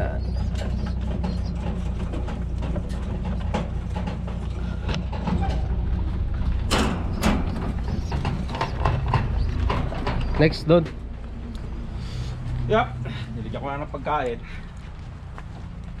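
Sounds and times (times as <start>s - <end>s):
wire rattling: 0.0s - 11.8s
steady low hum: 0.0s - 16.0s.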